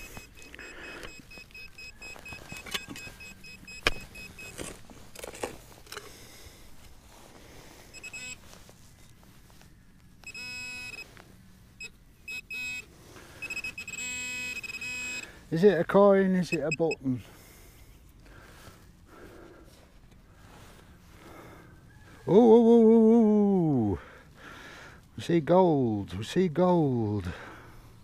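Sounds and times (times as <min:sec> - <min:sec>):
metal detector buzzing tone: 0:00.0 - 0:04.8, 0:07.9 - 0:08.5, 0:10.2 - 0:15.4, 0:16.4 - 0:17.0
metal detector beeping: 0:00.0 - 0:06.1, 0:07.9 - 0:08.6, 0:10.2 - 0:17.1.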